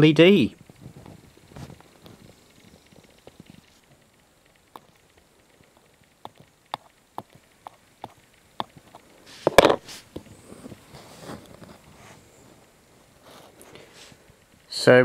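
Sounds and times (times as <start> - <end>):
tweezers tapping on stripboard: 4.4 - 10.3.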